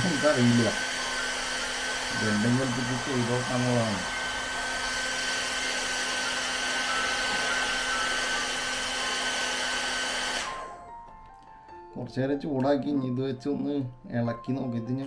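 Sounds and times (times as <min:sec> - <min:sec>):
hair dryer running: 0:00.0 - 0:11.1.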